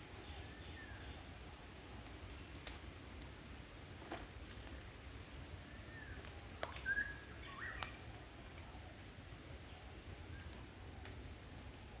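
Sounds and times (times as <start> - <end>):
bird chirp: 6.8 - 7.9.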